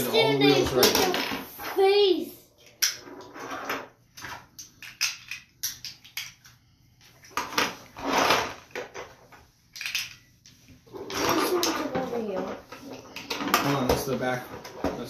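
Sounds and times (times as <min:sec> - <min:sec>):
plastic toy parts clattering: 0:04.2 - 0:06.5, 0:07.4 - 0:10.2.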